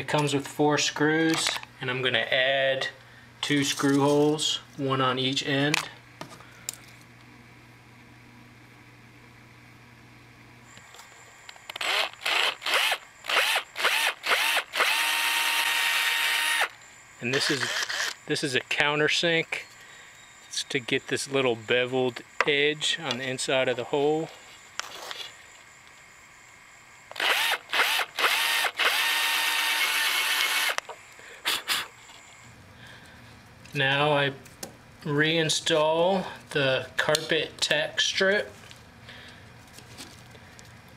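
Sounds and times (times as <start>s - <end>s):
cordless drill whining: 11.7s - 16.8s, 17.4s - 18.2s, 27.1s - 31.0s.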